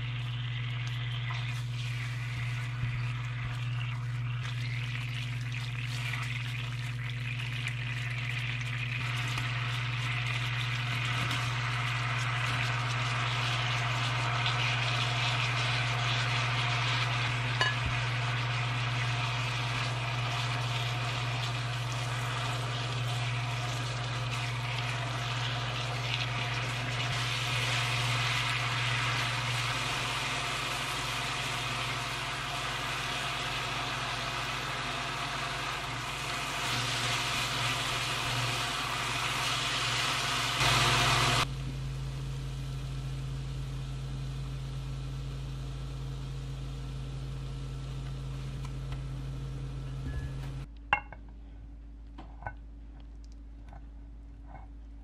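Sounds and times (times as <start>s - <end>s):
sauce sizzling in a frying pan: 0.0s - 41.5s
steady low hum: 0.0s - 55.0s.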